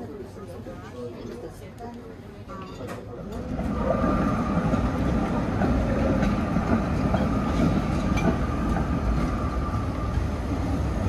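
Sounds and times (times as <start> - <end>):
tram rumbling on rails: 3.0 - 11.0
wheels clicking over rail joints: 3.3 - 10.3.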